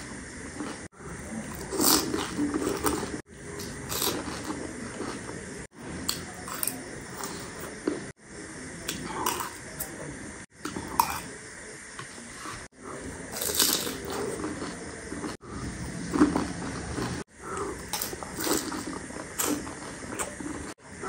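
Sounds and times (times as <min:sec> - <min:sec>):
crunching and chewing: 0:00.5 - 0:08.0, 0:12.9 - 0:20.8.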